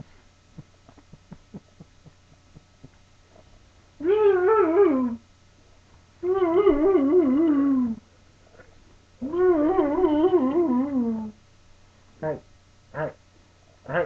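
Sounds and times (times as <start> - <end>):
dog warbling calls: 4.0 - 5.2, 9.2 - 11.3, 12.2 - 13.2.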